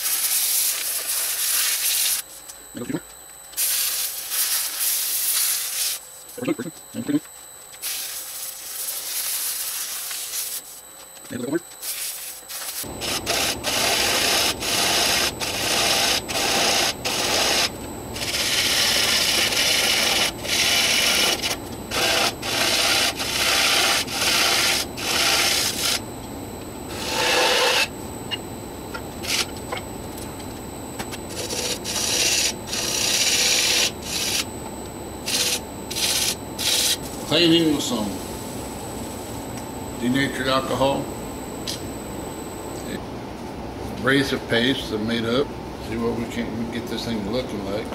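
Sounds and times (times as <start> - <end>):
turning tool scraping hiss: 3.6 - 6.0, 7.8 - 10.8, 11.7 - 26.0, 26.9 - 27.9
wood lathe hum: 12.8 - 26.1, 26.9 - 27.9, 31.3 - 34.5.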